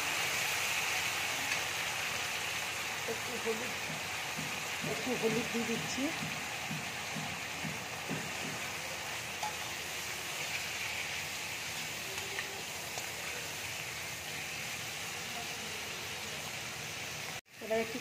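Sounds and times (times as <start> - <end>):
food sizzling in hot oil: 0.0 - 18.0
metal spatula scraping wok: 8.3 - 13.8.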